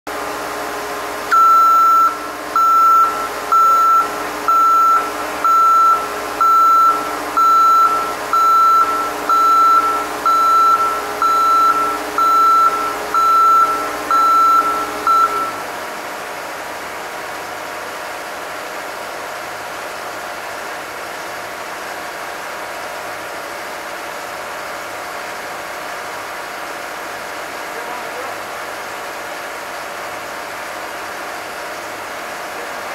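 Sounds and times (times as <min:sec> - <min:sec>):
vehicle engine running: 0:00.1 - 0:32.9
reversing alarm beeping: 0:01.3 - 0:15.7.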